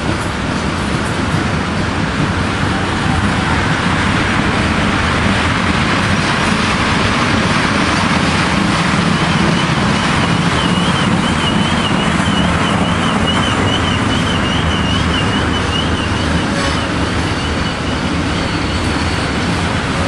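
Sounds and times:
wheel squeal: 10.6 - 19.7.

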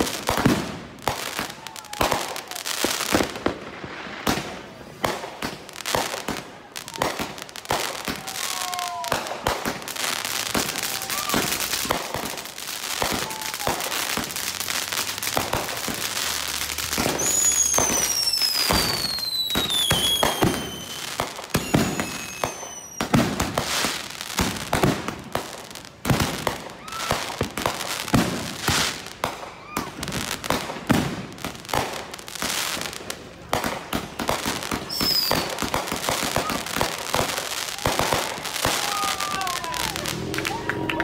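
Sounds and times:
fireworks launch shots: 0.0 - 41.0
falling firework whistle: 10.6 - 12.2, 13.0 - 14.5, 15.3 - 23.2, 26.7 - 27.4, 34.7 - 41.0.

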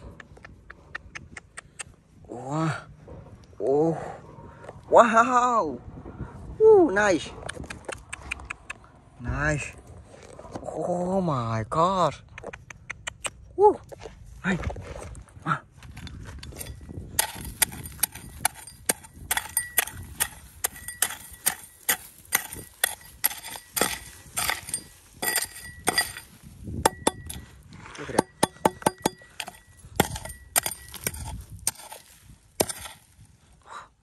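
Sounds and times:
dirt and gravel scraping: 9.2 - 11.4, 13.8 - 33.6
hoe striking stony soil: 15.8 - 33.3.

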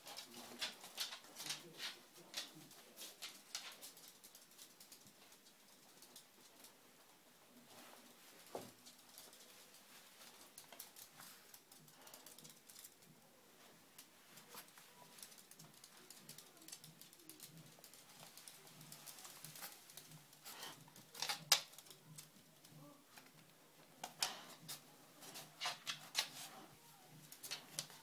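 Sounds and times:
rustling of dogs moving: 0.0 - 28.0.

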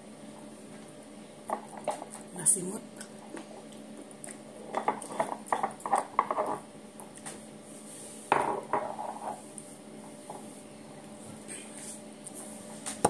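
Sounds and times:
tableware clinking: 4.7 - 6.6.

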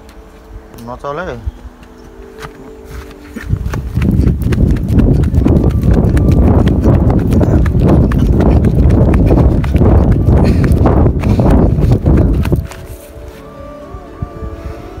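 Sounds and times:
wind noise on microphone: 0.0 - 15.0
running footsteps thudding: 1.6 - 13.2
microphone handling rumble: 3.4 - 13.2.

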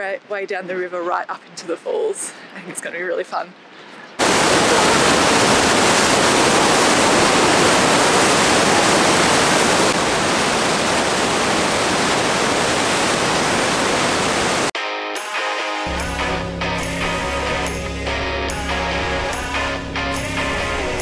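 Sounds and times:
white water rushing: 4.2 - 14.8
music: 14.8 - 21.0.

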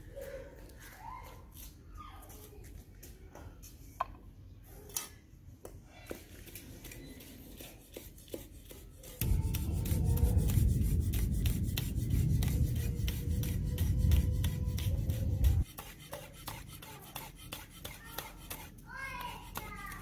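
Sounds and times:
loud low rumble: 9.2 - 15.6.

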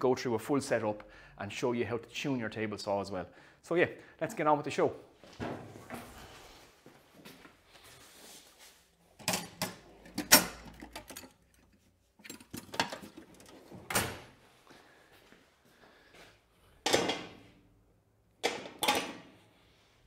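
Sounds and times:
hand tools clunking and rattling: 9.2 - 14.1.

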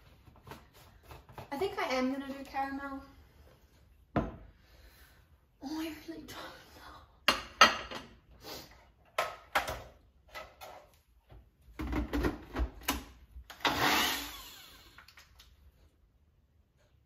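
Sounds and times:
blender motor running: 13.6 - 15.1.

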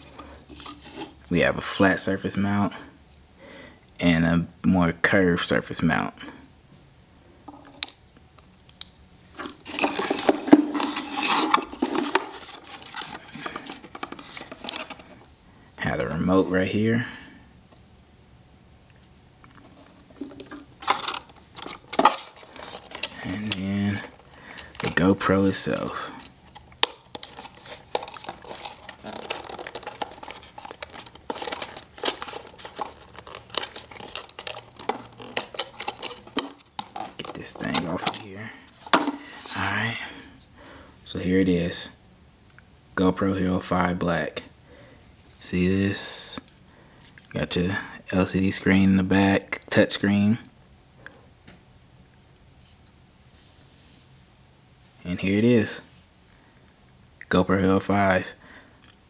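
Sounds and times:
hands rummaging in cardboard box: 9.4 - 15.2, 19.8 - 25.3, 26.2 - 39.8
plastic packaging crinkling: 9.4 - 15.2, 19.7 - 39.7.

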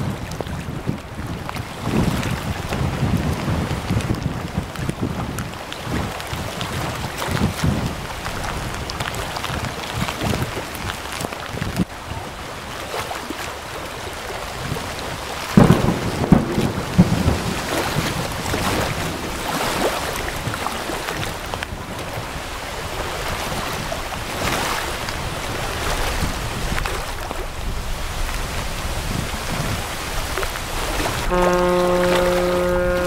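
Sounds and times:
wind buffeting microphone: 0.0 - 13.0, 14.0 - 33.0
choppy water: 0.0 - 33.0
rain hissing: 29.9 - 33.0.

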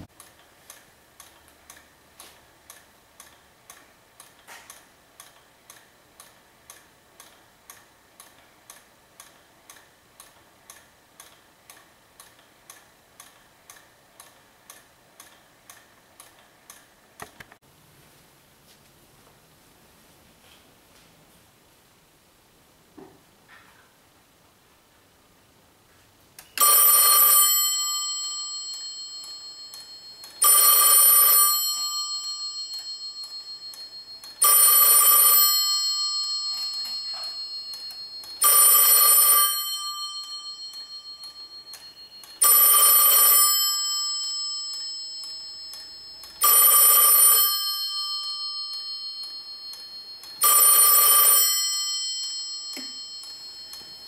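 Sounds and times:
telephone bell ringing: 26.6 - 54.0.

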